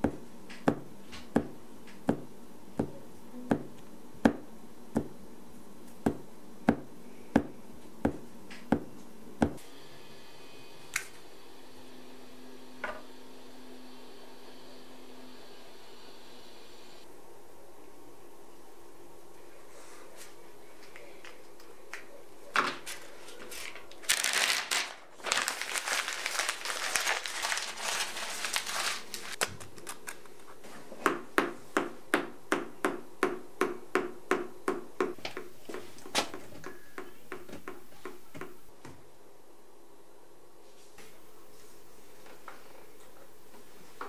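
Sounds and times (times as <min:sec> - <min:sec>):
paper rustling: 0:22.6 - 0:30.8.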